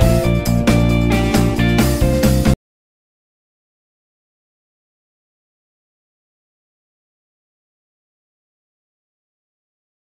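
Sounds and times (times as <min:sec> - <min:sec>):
guitar music with steady beat: 0:00.0 - 0:02.6.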